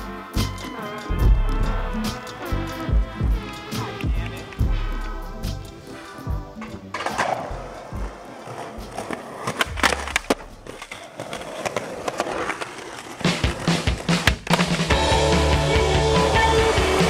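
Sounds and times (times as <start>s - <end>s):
skateboard wheels rolling on concrete: 0.0s - 4.8s, 5.5s - 17.0s
skateboard clacking on ground: 6.5s - 14.9s.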